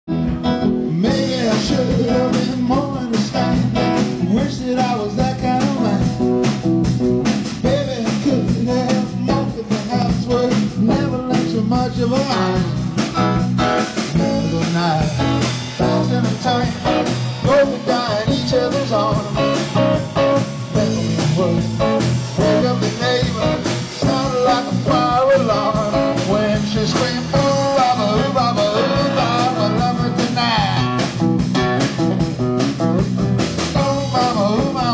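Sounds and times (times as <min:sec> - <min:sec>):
live bluesy rock band: 0:00.1 - 0:34.9.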